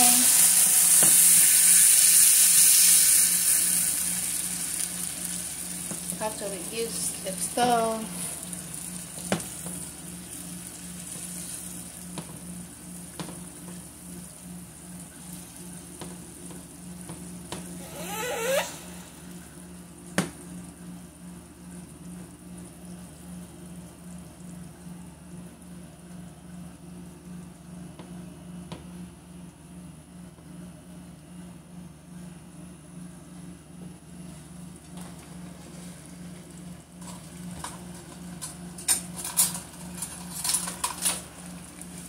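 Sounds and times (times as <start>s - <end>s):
sauce simmering in a frying pan: 0.0s - 17.8s.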